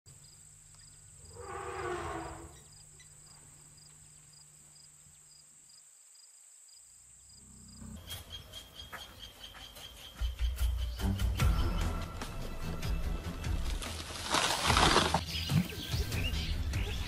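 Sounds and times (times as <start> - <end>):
insects buzzing: 0.1 - 16.2
insect chirping in pulses: 0.2 - 8.8
animal call: 1.2 - 2.8.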